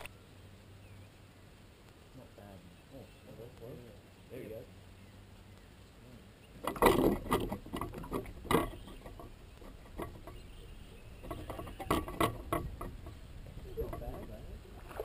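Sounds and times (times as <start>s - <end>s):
fishing gear clicks and knocks: 6.6s - 10.4s, 11.2s - 13.1s.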